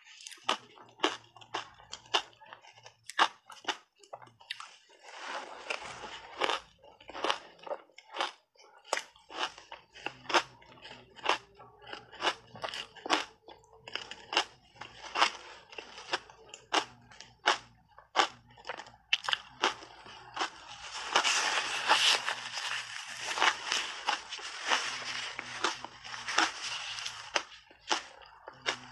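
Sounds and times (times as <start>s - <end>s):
crunching shaved ice: 13.9s - 28.9s.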